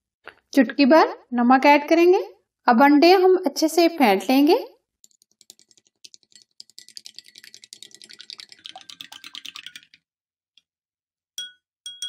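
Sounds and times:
spoon beating eggs in bowl: 5.0s - 10.0s, 11.4s - 12.0s.

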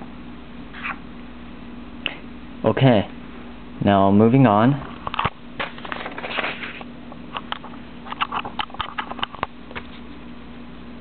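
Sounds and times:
faint steady hum: 0.0s - 11.0s
paper rustling: 5.6s - 6.9s.

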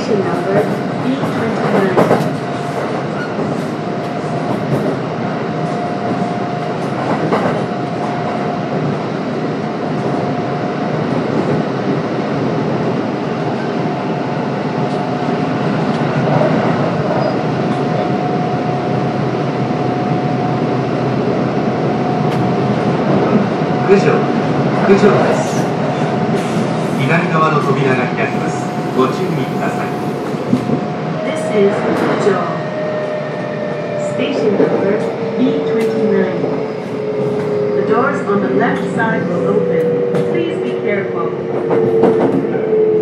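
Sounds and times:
wheels rumbling on rail: 0.0s - 43.0s
electric train whine: 13.0s - 43.0s.

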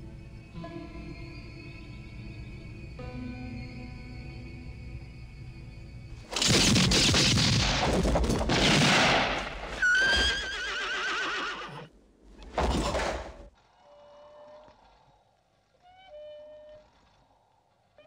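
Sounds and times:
gunfire bursts with echoes: 6.4s - 9.7s
horse whinnying: 9.7s - 11.9s.

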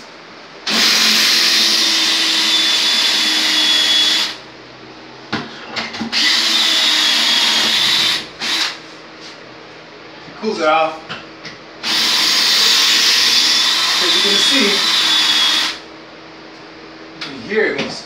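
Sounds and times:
drill boring into tile: 0.7s - 4.4s, 6.1s - 8.8s, 11.8s - 15.8s.

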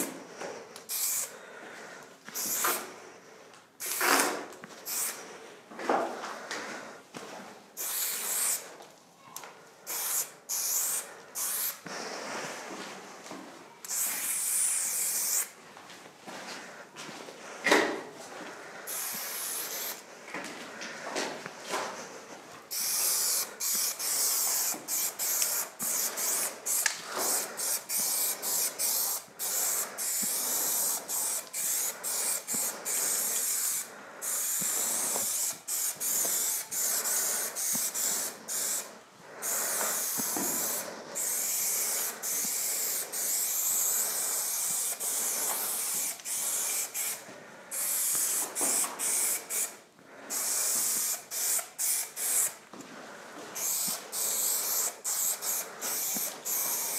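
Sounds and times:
aerosol spray can spraying: 0.9s - 1.3s, 2.4s - 2.9s, 3.8s - 5.2s, 7.8s - 8.6s, 9.9s - 11.8s, 13.9s - 15.6s, 18.9s - 20.0s, 22.7s - 52.6s, 53.6s - 56.9s.

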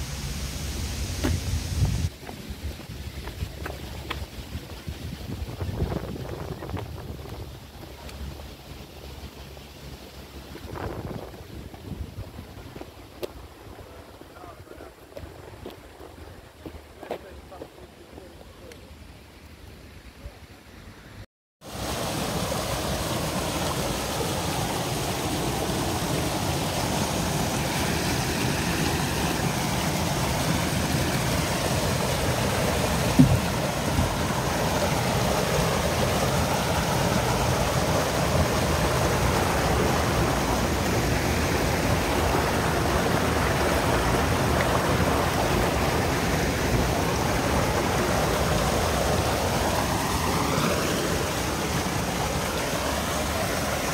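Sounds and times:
water rushing: 0.0s - 53.9s
brief knock: 1.2s - 1.4s, 33.2s - 33.4s.

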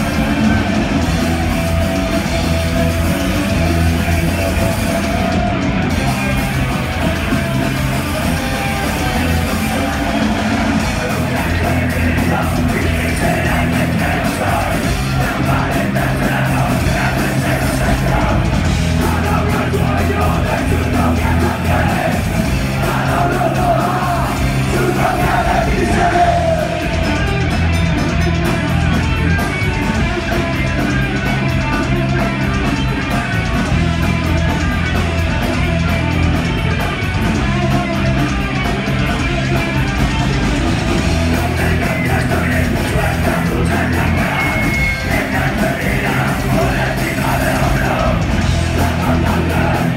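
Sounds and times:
punk rock band playing: 0.0s - 49.9s
singer shouting vocals: 10.9s - 27.0s, 41.4s - 49.9s.

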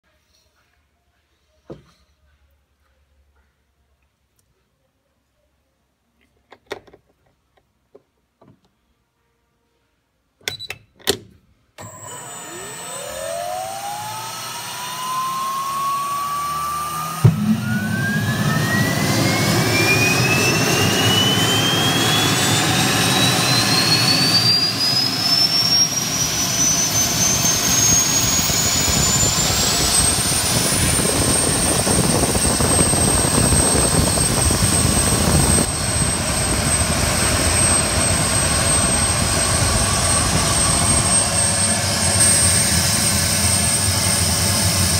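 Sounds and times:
turbine whine: 11.8s - 44.9s
loud rushing roar: 16.5s - 44.9s
engine ignition thump: 17.2s - 17.8s.

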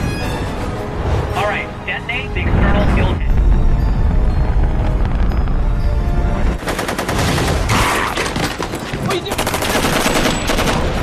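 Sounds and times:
music: 0.0s - 11.0s
rapid machine gun fire: 9.3s - 11.0s.

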